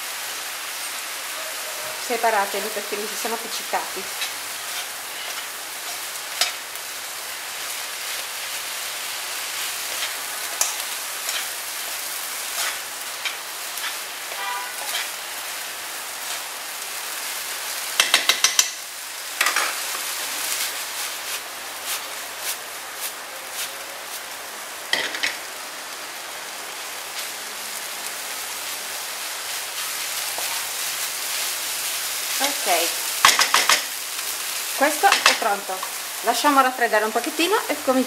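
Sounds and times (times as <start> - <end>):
food sizzling in a frying pan: 0.0 - 38.0
utensil scraping and clicking on pan: 4.2 - 6.6, 9.9 - 11.5, 12.6 - 15.1, 18.0 - 18.8.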